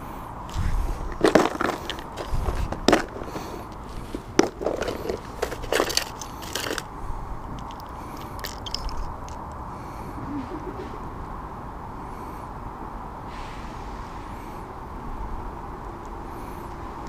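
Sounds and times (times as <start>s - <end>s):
rubber lure rustling: 0.5s - 9.6s.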